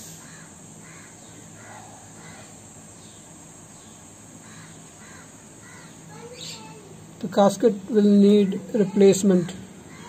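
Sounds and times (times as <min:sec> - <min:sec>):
birds calling: 0:00.0 - 0:10.0
low hum and hiss: 0:00.0 - 0:10.0.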